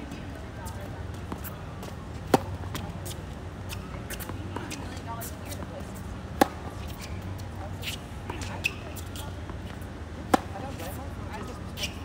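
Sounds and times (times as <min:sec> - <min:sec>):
tennis racket hitting ball: 0:02.3 - 0:03.2, 0:06.3 - 0:07.2, 0:10.2 - 0:11.9.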